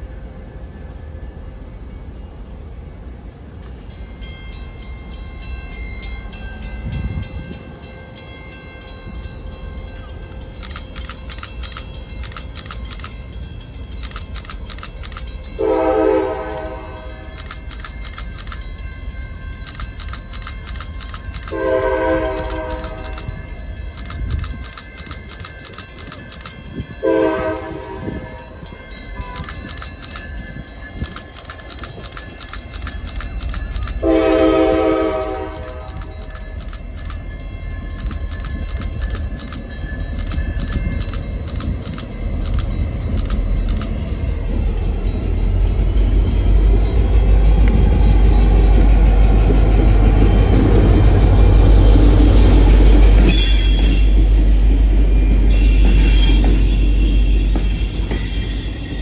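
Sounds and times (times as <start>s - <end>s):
crossing bell ringing: 0.0s - 59.0s
locomotive air horn: 15.6s - 17.3s, 21.5s - 23.3s, 27.0s - 28.5s, 34.0s - 36.2s.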